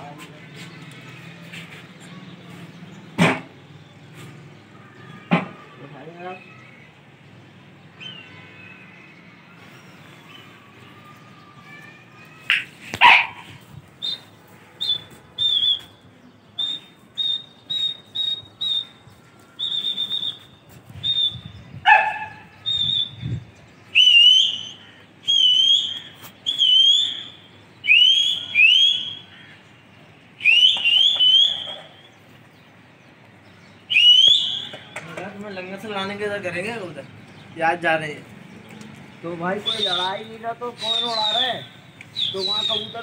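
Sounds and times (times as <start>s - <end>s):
quick rising whistles: 14.0s - 16.0s, 16.6s - 19.0s, 19.6s - 21.6s, 22.6s - 23.2s, 24.0s - 24.7s, 25.3s - 29.2s, 30.4s - 32.0s, 33.9s - 34.8s
sharp high whistles: 14.0s - 16.0s, 16.6s - 19.0s, 19.6s - 21.6s, 22.6s - 23.2s, 24.0s - 29.3s, 30.4s - 32.1s, 33.9s - 34.8s, 39.6s - 43.0s
loud call: 24.0s - 29.6s, 30.4s - 32.1s, 33.9s - 35.1s.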